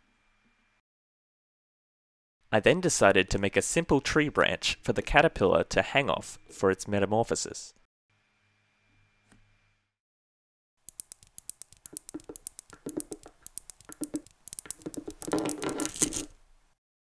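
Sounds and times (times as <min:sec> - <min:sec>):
magnet spheres clicking together: 0:10.8 - 0:16.3.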